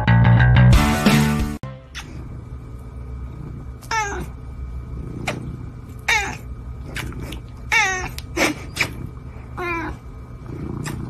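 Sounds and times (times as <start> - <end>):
cat meowing: 3.8 - 4.3, 6.1 - 6.5, 7.7 - 8.2.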